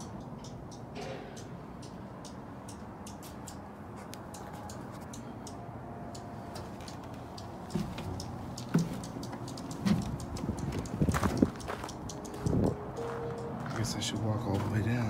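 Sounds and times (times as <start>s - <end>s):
footsteps on metal steps and gravel: 0.0s - 4.8s, 6.5s - 15.0s
faint high ticking: 4.2s - 14.6s.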